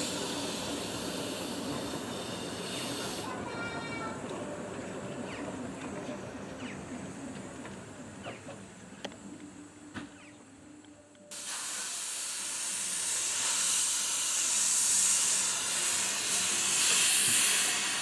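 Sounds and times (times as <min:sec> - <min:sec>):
steam locomotive venting steam: 0:00.0 - 0:04.1, 0:11.3 - 0:18.0.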